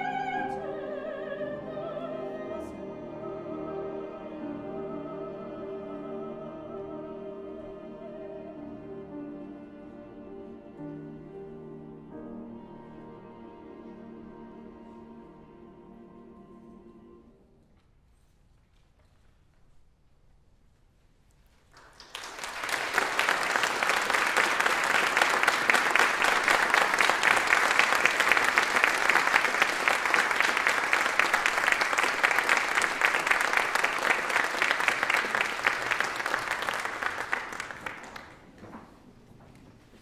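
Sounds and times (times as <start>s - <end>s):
audience applauding: 21.7s - 38.6s.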